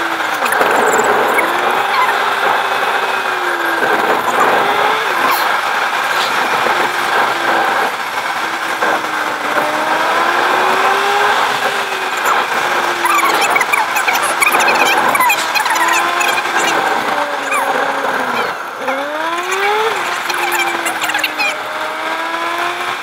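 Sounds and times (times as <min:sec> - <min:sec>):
car engine and road noise: 0:00.0 - 0:23.0
short high squeaks: 0:17.4 - 0:18.6.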